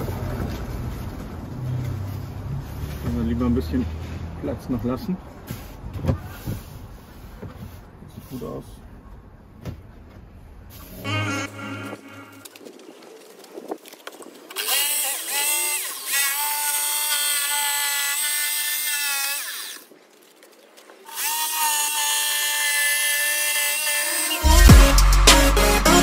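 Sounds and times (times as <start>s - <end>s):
power tool motor whining: 14.5s - 19.9s, 21.1s - 25.0s.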